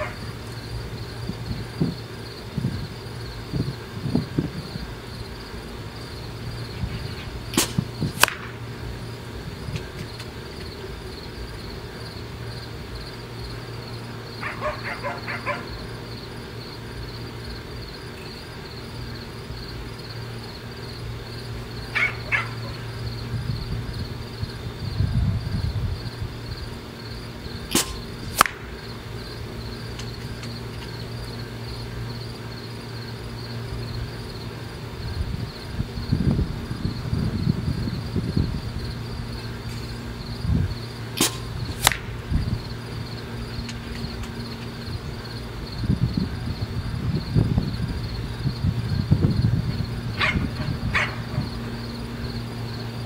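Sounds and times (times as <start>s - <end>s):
insects chorus: 0.0s - 53.0s
low hum: 0.0s - 53.0s
air rifle shots: 7.5s - 8.7s, 27.7s - 28.8s, 41.2s - 42.2s.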